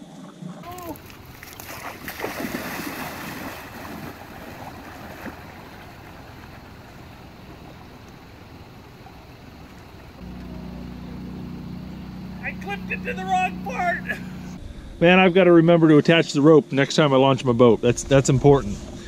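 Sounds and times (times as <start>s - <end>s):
wading through river water: 0.6s - 14.6s.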